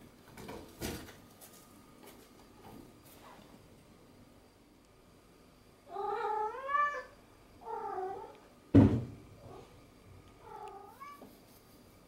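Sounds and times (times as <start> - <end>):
cat meowing: 5.9 - 8.4, 10.4 - 11.2
loud sharp thump: 8.7 - 9.2.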